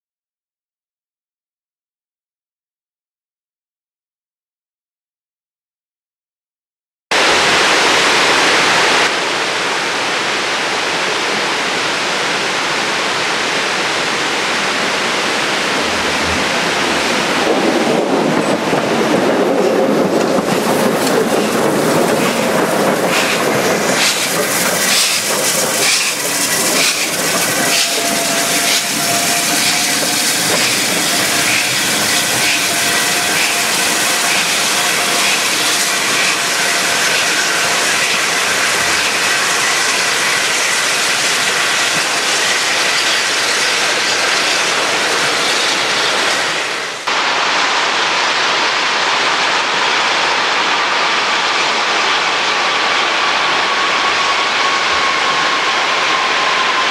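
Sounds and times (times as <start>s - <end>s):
steam locomotives passing: 7.2s - 56.9s
weir water rushing: 7.2s - 56.9s
wheels clicking over rail joints: 17.5s - 47.0s
high wheel squeal: 22.2s - 46.8s, 53.1s - 56.9s.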